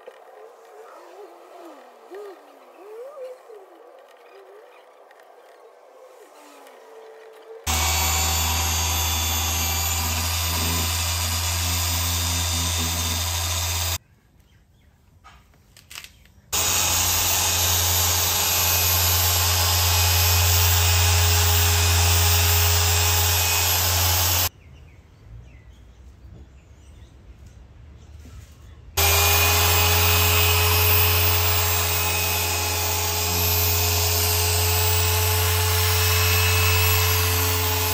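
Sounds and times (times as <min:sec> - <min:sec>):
dual-action polisher running: 0:07.7 - 0:14.0, 0:16.6 - 0:24.5, 0:29.0 - 0:37.9.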